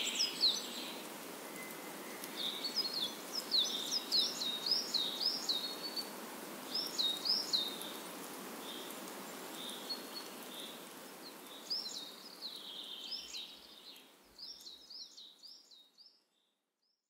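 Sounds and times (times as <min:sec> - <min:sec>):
steady hiss: 0:00.0 - 0:14.8
faint high chirp: 0:01.5 - 0:02.9.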